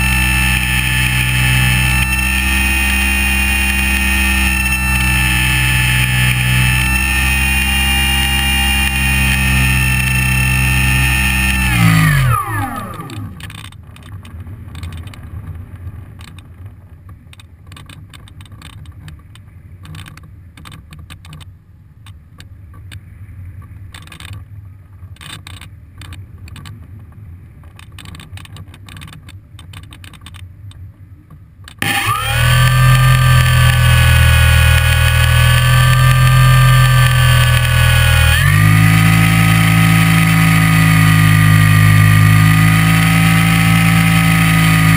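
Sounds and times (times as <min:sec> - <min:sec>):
model plane motor whine: 0:00.0 - 0:13.7, 0:31.8 - 0:44.9
airframe rattling clicks: 0:00.0 - 0:15.2, 0:27.7 - 0:30.5.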